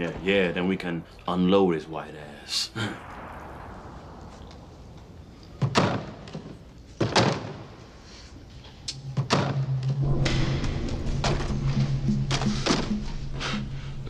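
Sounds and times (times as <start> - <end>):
low steady drone: 8.4 - 14.0.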